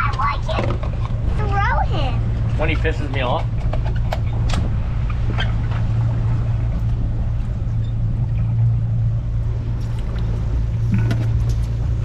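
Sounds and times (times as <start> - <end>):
motorboat engine droning: 0.0 - 12.0.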